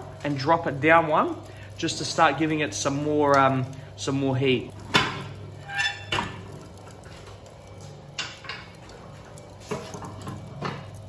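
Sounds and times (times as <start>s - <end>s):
metal rods clanking on rack: 4.9s - 6.5s.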